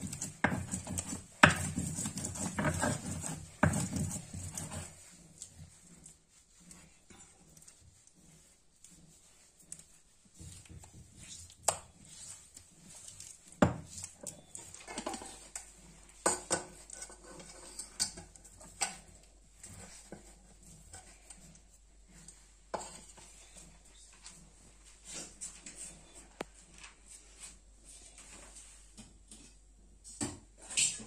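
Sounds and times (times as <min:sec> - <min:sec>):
hand scraping paste off stone: 0:00.0 - 0:09.8.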